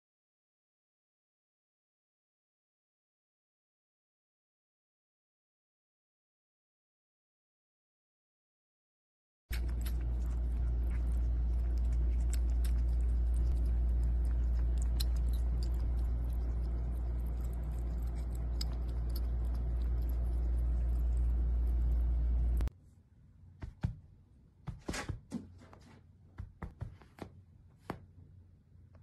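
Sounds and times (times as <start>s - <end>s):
kitten lapping water: 9.5s - 22.7s
loud steady low hum: 9.5s - 25.1s.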